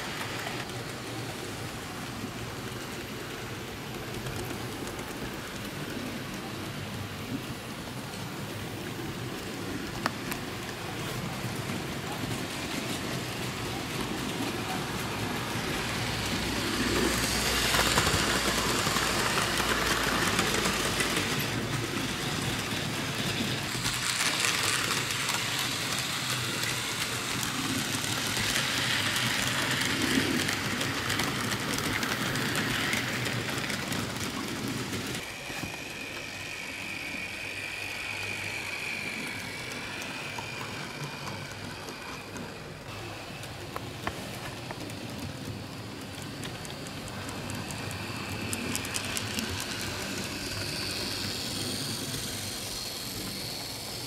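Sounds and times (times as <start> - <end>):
model train wheels rattling on track: 0.0 - 54.0
steady high whine: 12.0 - 54.0.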